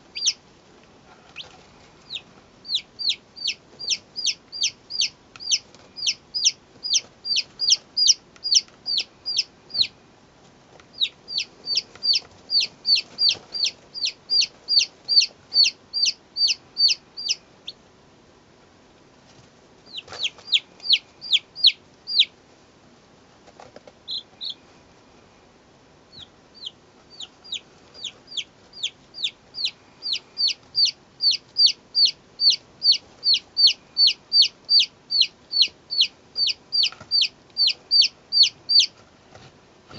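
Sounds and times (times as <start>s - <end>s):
soft chick chirps: 0.0s - 0.4s, 1.1s - 10.0s, 10.9s - 17.8s, 19.8s - 22.4s, 23.5s - 25.1s, 26.1s - 39.0s
chicks peeping: 0.0s - 0.5s, 1.1s - 10.0s, 10.8s - 17.8s, 19.3s - 22.4s, 23.4s - 25.1s, 26.1s - 39.5s.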